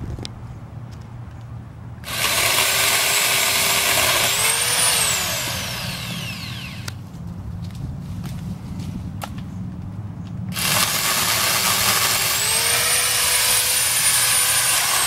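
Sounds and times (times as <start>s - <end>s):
chainsaw motor whine: 2.0s - 7.0s, 10.5s - 15.0s.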